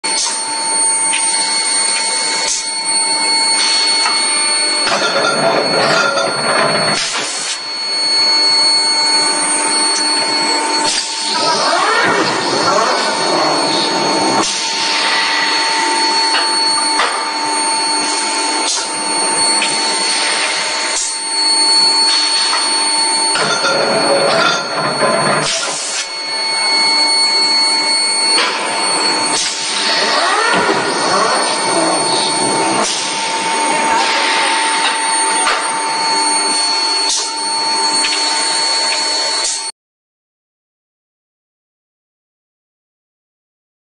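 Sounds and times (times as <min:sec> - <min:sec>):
machinery whine: 0:00.0 - 0:39.7.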